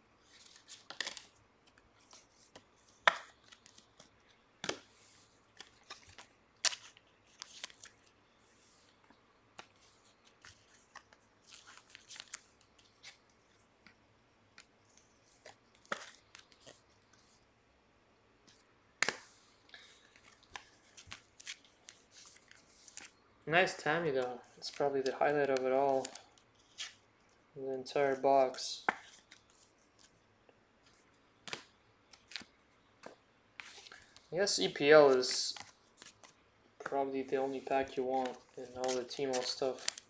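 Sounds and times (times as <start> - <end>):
soft rustling of packaging: 0.2 - 17.6, 18.4 - 40.0
cards clicking and tapping: 31.4 - 34.2, 37.8 - 40.0.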